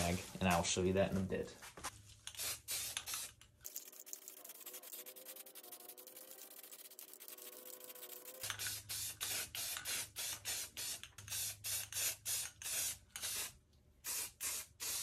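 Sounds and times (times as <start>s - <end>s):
spray paint can hissing: 2.3s - 15.0s.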